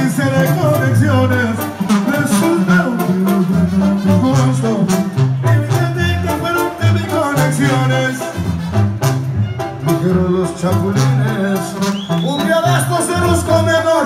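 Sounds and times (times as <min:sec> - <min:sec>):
trombones and trumpets: 0:00.0 - 0:14.0
tuba bass line: 0:00.0 - 0:14.0.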